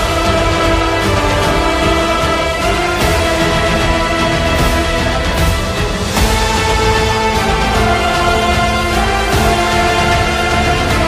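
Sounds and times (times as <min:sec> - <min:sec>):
background music with low beat: 0:00.0 - 0:11.0.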